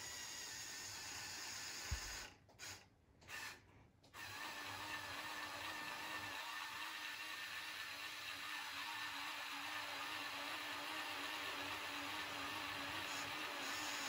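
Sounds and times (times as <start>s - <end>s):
small electric motors whirring: 0.0s - 3.6s, 4.2s - 14.0s.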